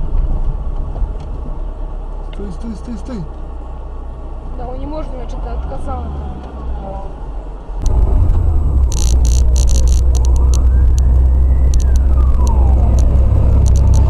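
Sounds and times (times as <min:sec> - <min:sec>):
car engine and road rumble: 0:00.0 - 0:14.0
faint siren wailing: 0:05.8 - 0:14.0
clicks and rattles: 0:07.8 - 0:14.0.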